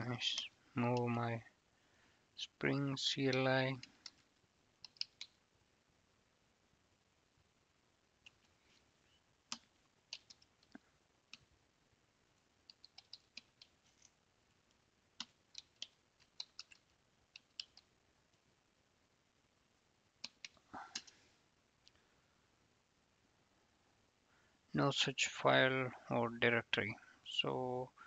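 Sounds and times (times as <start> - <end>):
keyboard typing clicks: 4.8 - 5.4, 9.5 - 10.5, 12.7 - 13.7, 15.2 - 17.9.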